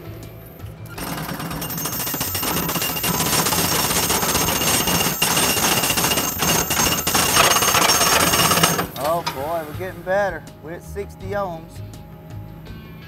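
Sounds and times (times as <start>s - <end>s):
hydraulic rod driver pounding: 1.0s - 9.9s.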